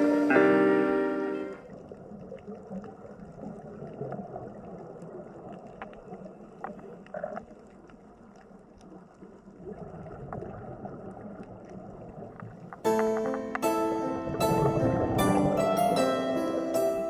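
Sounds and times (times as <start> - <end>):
water sloshing and gurgling: 1.6 - 12.8.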